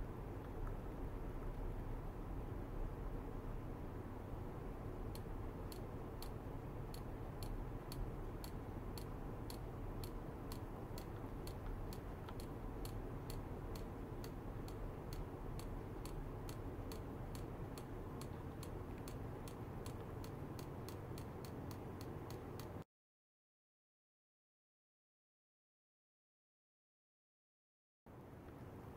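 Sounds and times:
steady low hum: 0.0 - 22.8
regular sharp ticking: 4.9 - 22.8.

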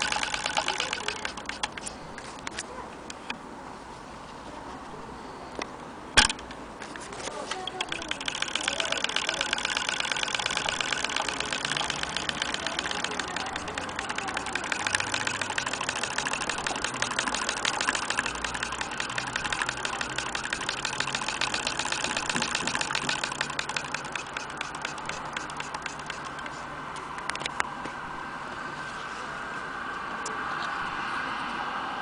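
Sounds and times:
sewing machine clattering: 0.0 - 1.8, 7.6 - 26.2.

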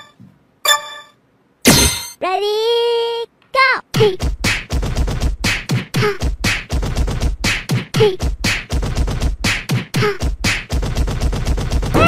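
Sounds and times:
beatbox-style music beat: 3.9 - 12.0.

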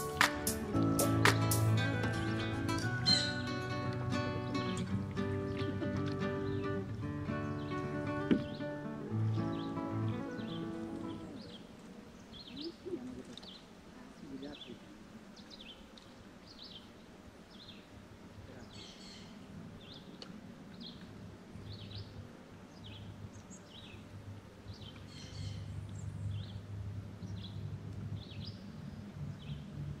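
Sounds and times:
birds chirping: 0.0 - 29.7
low steady hum: 18.0 - 30.0.

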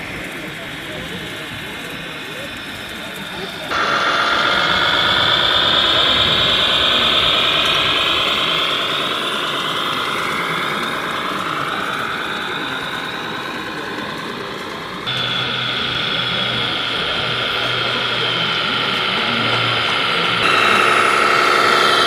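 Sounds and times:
model truck motor whine: 0.0 - 22.0.

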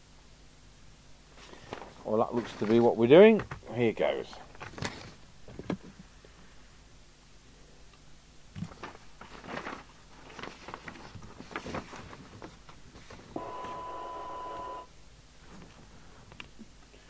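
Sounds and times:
paper rustling: 1.4 - 3.0, 4.5 - 5.2, 8.6 - 13.9
steady test tone: 13.4 - 14.9.

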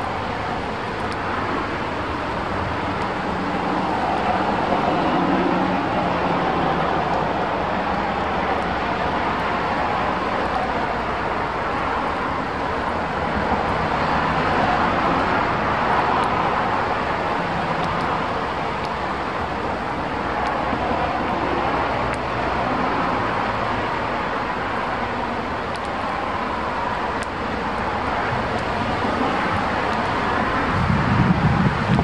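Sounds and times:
strong wind rushing: 27.6 - 32.0.

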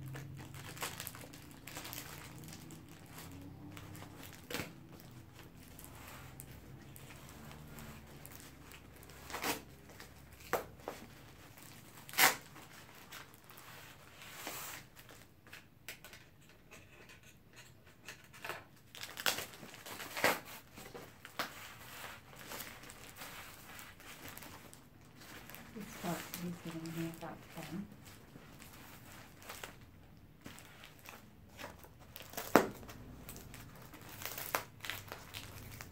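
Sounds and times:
plastic wrap crinkling: 0.0 - 16.2, 18.4 - 35.9
scissors cutting plastic: 30.9 - 35.9.

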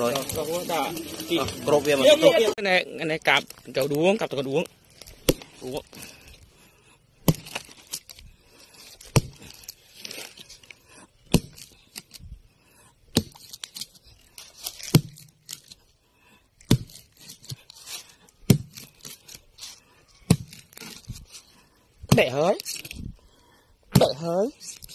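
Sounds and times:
material crackling and tearing: 0.0 - 2.6, 7.4 - 8.2, 13.3 - 15.8.

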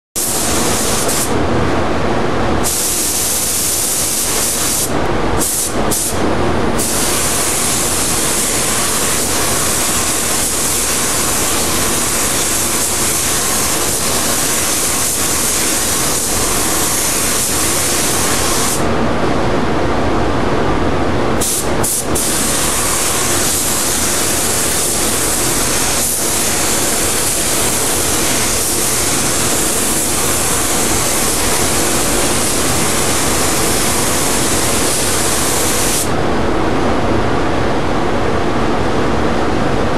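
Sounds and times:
paint spray gun hissing: 0.2 - 1.4, 2.6 - 6.2, 6.8 - 18.8, 21.4 - 36.2
low steady rush of air: 0.2 - 39.9.

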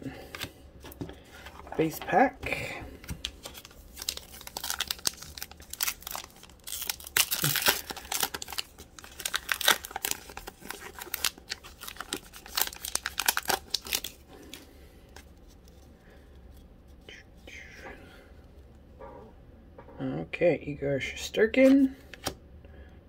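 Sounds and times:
foil wrapper tearing and crinkling: 3.1 - 14.6.

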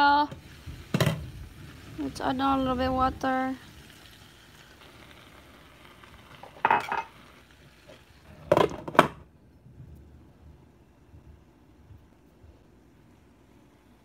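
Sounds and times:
faint hiss of vegetables cooking: 0.0 - 14.0
glass lid clattering onto pan: 6.5 - 7.2.

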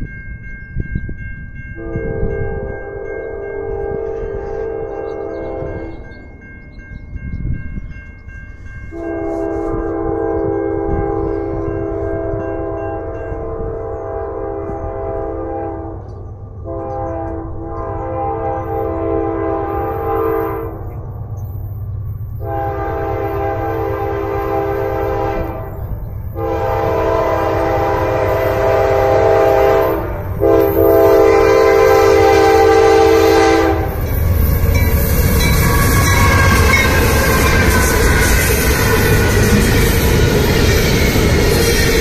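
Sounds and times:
locomotive engine and wheels passing: 0.0 - 42.0
train air horn blasts: 1.8 - 6.0, 8.9 - 20.9, 22.4 - 34.0.

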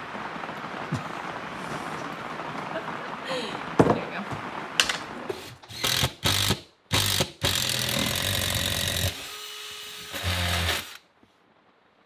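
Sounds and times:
cordless drill boring into wood: 5.3 - 11.0.

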